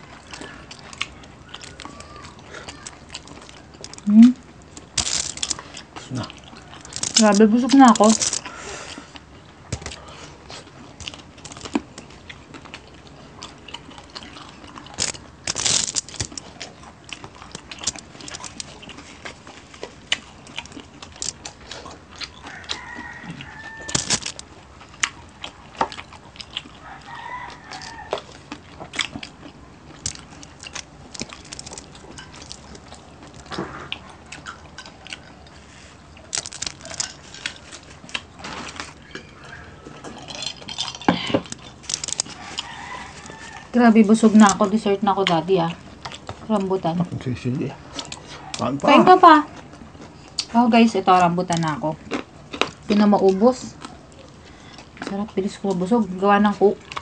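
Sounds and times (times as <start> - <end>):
crunching and chewing: 0.0 - 57.0
rooster crowing: 22.4 - 24.4, 26.8 - 28.4, 42.2 - 44.2.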